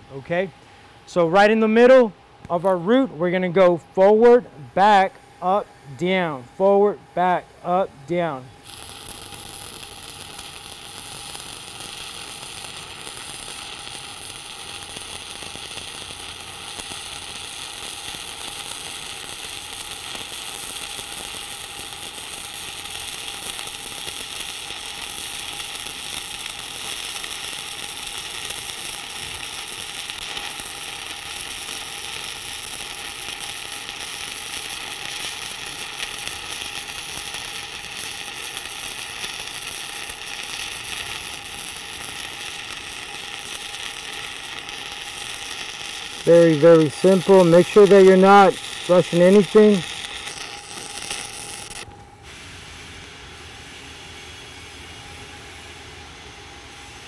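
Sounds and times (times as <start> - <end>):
welding arc crackling: 7.4 - 51.9.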